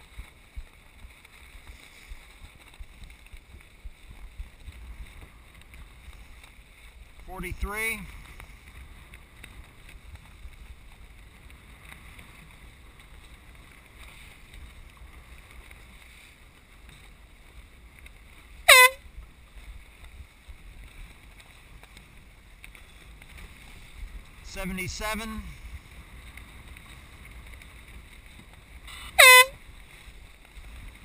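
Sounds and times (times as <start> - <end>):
water noise: 0.0 - 31.0
wind: 0.0 - 31.0
air horn blast: 18.7 - 19.0, 28.9 - 29.6.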